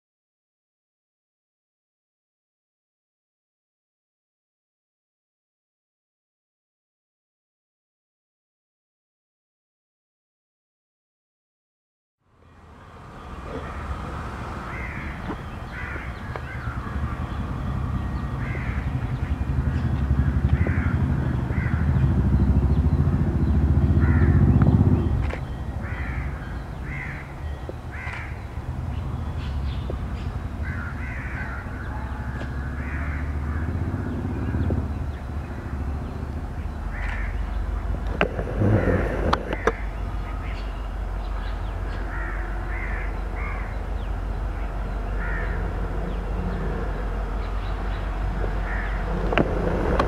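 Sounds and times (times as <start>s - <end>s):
diesel locomotive engine rumbling: 12.3s - 50.0s
crows cawing: 13.4s - 22.1s, 23.9s - 24.6s, 25.8s - 28.4s, 30.6s - 34.3s, 36.8s - 37.9s, 38.6s - 40.7s, 42.0s - 43.8s, 44.6s - 46.2s, 48.5s - 49.2s.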